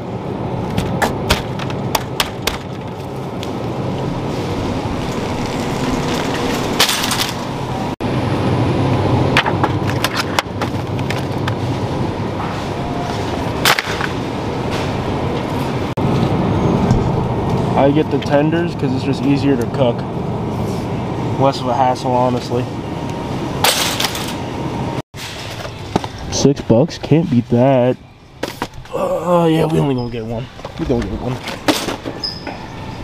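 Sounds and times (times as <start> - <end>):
shopping cart wheels rumbling: 2.7 - 16.2.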